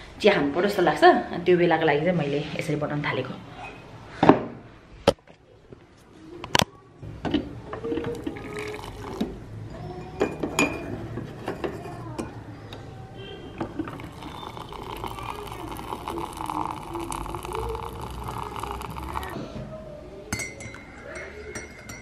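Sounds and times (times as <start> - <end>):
hot water pouring into a mug: 8.1 - 9.4, 13.6 - 19.4.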